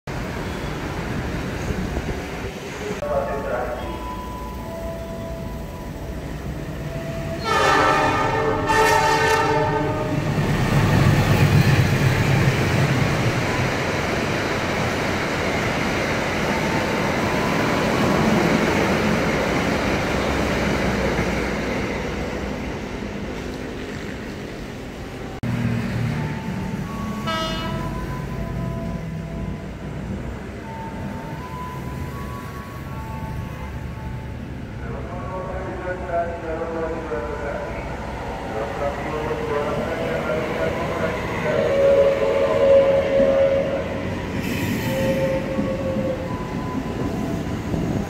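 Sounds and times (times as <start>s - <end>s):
train wheels rumbling on rails: 5.4s - 34.6s, 35.2s - 48.0s
train horn blasts: 7.4s - 10.3s, 27.2s - 28.0s, 41.0s - 46.3s.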